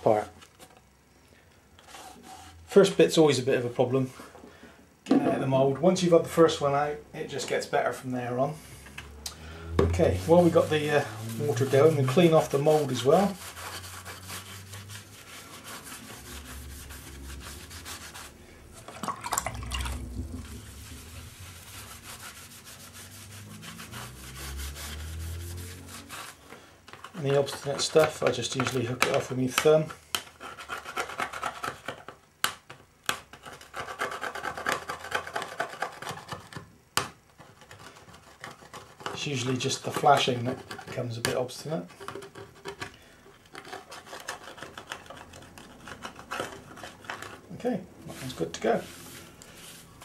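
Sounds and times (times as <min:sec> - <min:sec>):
sponge scrubbing fibreglass mould: 0:09.7 - 0:26.4, 0:37.4 - 0:42.8, 0:43.5 - 0:50.0.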